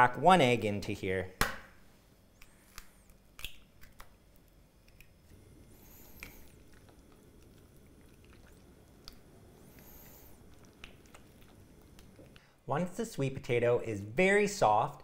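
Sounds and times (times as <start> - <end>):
egg cracking clicks: 2.3 - 12.5
spatula stirring wet mixture: 2.4 - 12.5.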